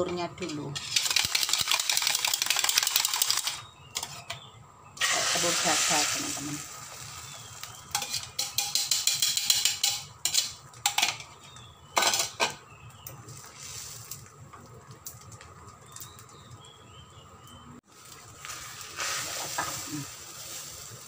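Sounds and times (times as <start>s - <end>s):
egg sizzling in a hot pan: 5.0s - 10.1s, 17.9s - 21.0s
dishes and utensils clattering: 7.8s - 11.4s, 12.0s - 12.6s.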